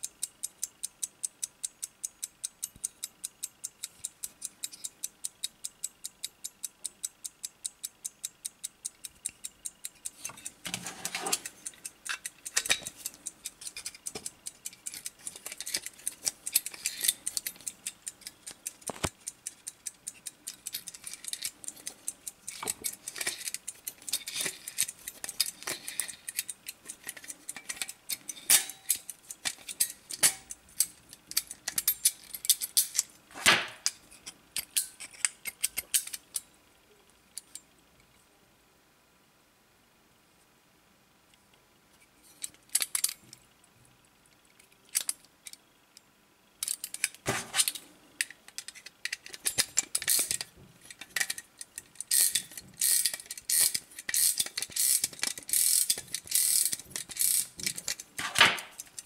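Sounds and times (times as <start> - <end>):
clock ticking: 0.0 - 30.6
clicks and rattles of handled movement: 10.1 - 33.2, 46.6 - 59.0.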